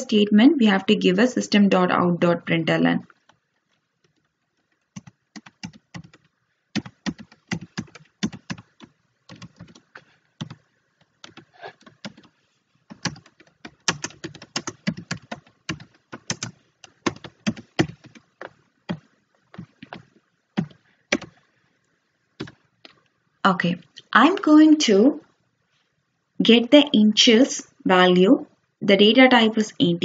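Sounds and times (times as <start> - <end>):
keyboard typing: 4.0 - 21.4, 22.4 - 23.0.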